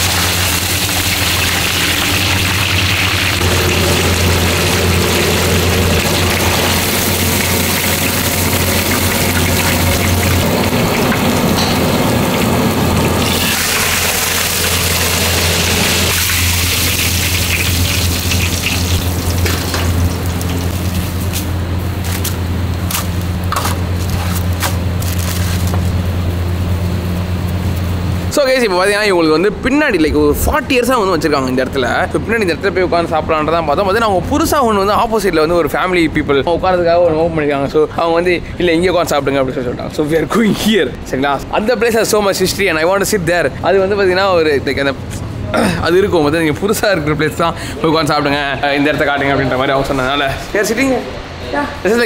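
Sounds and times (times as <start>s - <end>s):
fish sizzling in hot oil: 0.0s - 11.5s, 12.3s - 21.5s
low hum: 0.0s - 32.9s.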